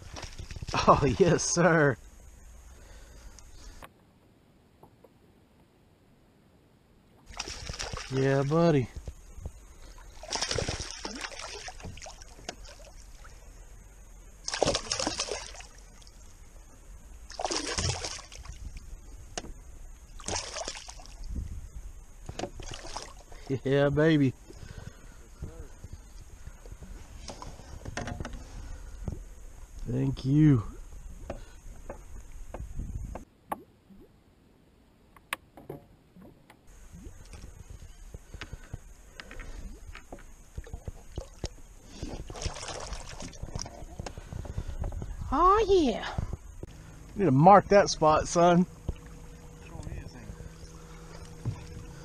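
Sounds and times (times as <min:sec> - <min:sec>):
fish splashing in water: 0:07.3 - 0:08.2, 0:09.8 - 0:13.4, 0:14.4 - 0:16.2, 0:17.3 - 0:18.8, 0:20.2 - 0:21.3, 0:22.6 - 0:23.3, 0:42.2 - 0:43.8
clicks and knocks handling fish: 0:25.4 - 0:29.2, 0:37.3 - 0:45.2.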